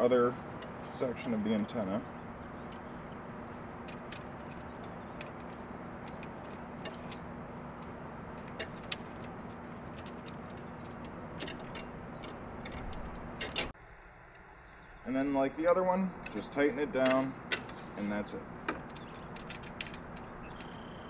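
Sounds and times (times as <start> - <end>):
background hum and hiss: 0.0 - 21.0
light clicks of parts handled: 3.8 - 7.2, 7.8 - 13.7.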